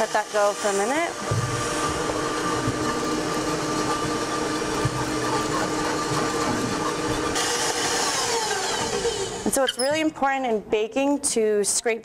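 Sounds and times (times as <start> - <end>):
electric stand mixer running: 0.0 - 9.6.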